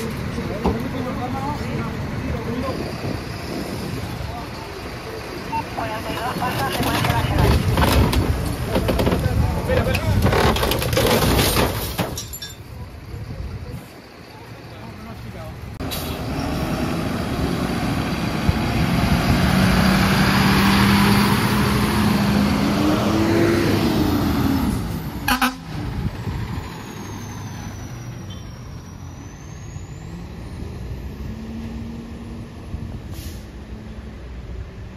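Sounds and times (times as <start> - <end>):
road sound: 0.0 - 34.9
fire truck driving past: 13.0 - 34.9.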